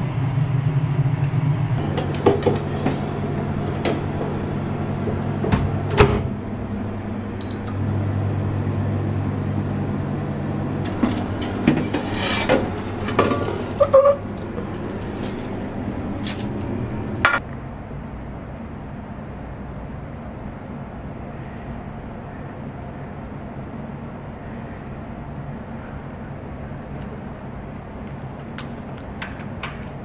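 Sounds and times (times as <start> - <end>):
electric oven humming: 0.0 - 30.0
metal baking tray clattering: 10.9 - 15.5.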